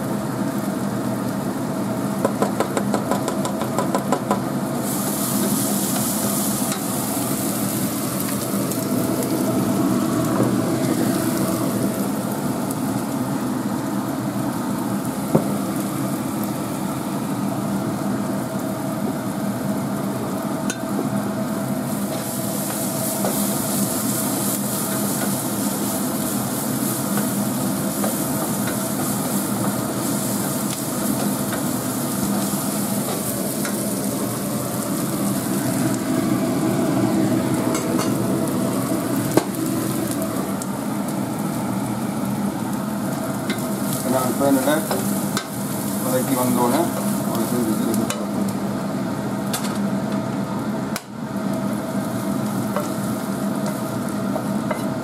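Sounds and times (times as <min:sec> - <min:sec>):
onions frying in hot oil: 0:00.0 - 0:55.0.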